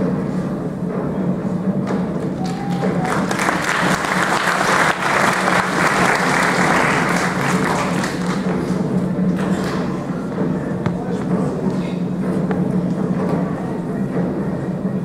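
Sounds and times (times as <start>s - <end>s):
audience applauding: 2.4s - 8.7s.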